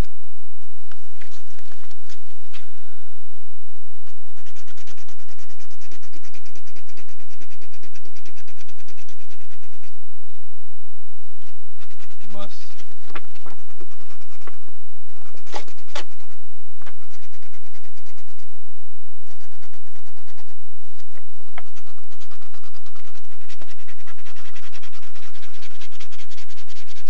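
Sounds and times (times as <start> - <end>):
scratching lottery tickets: 4.2 - 9.8, 11.5 - 18.4, 19.3 - 27.0.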